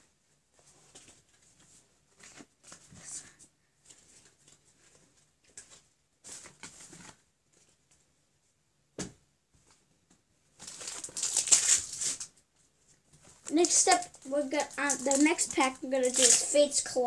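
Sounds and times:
cards and packaging rustling: 0.6 - 7.8, 10.6 - 12.4, 13.1 - 17.0.

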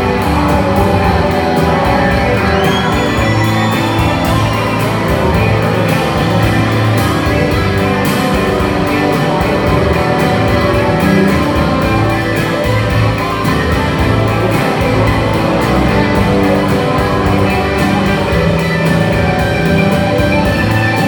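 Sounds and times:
electric guitar: 0.0 - 21.0
steady drum beat: 0.0 - 21.0.

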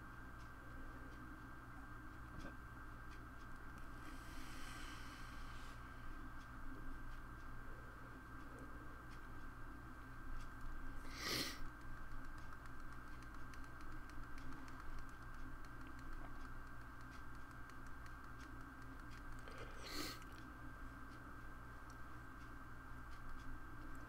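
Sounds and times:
electrical hum with high whine: 0.0 - 24.0
computer input clicks and taps: 12.1 - 19.5.

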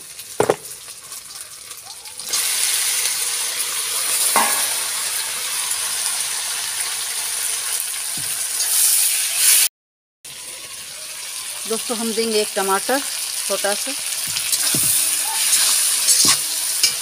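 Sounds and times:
meat sizzling in hot oil: 0.0 - 9.7, 10.3 - 17.0
ladle stirring: 14.3 - 17.0.

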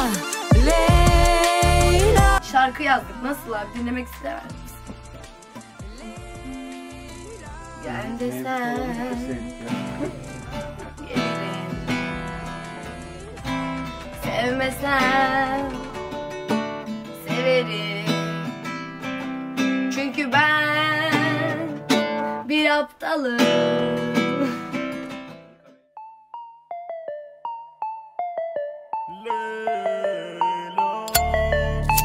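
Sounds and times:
person singing: 0.0 - 16.4, 17.1 - 18.5, 19.8 - 24.8, 29.1 - 32.0
acoustic guitar strummed: 0.0 - 22.4, 23.4 - 25.6.

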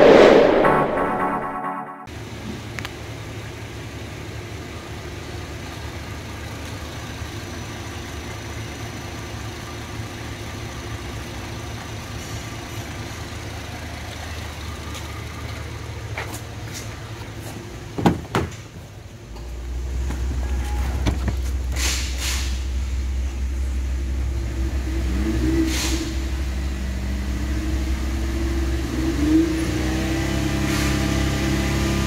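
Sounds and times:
car engine idling: 2.2 - 24.8.

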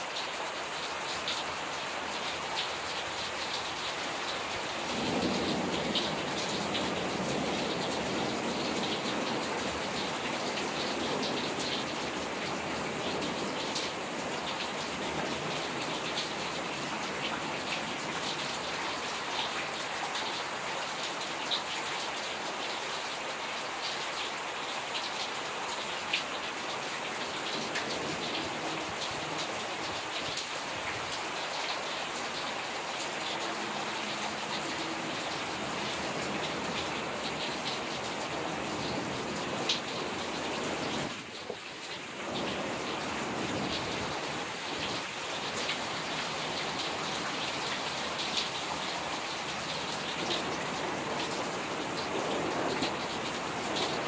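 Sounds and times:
steady rain: 0.0 - 54.0
thunder rumble: 4.8 - 11.6.

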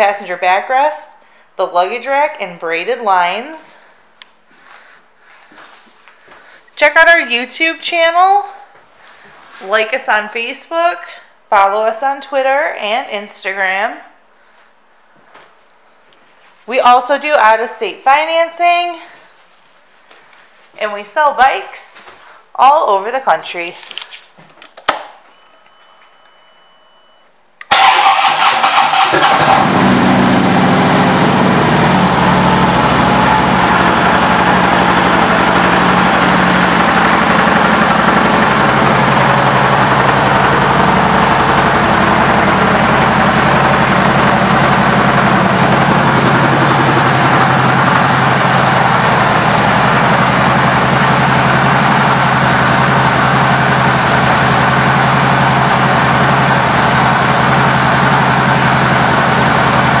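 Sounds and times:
motorcycle engine idling: 27.8 - 60.0.

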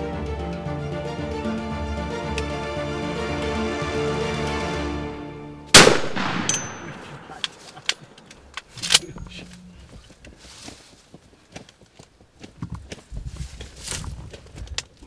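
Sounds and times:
background music: 0.0 - 7.3
loud shotgun blast: 5.7 - 7.4.

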